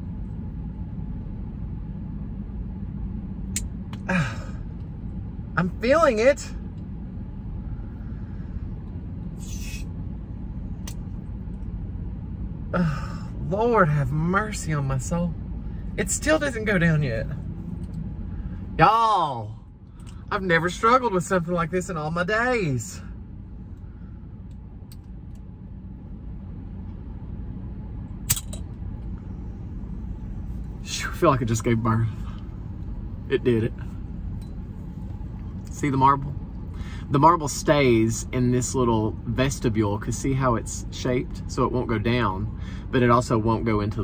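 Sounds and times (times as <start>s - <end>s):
low hum: 0.0s - 44.0s
low rumble inside car cabin: 0.0s - 44.0s.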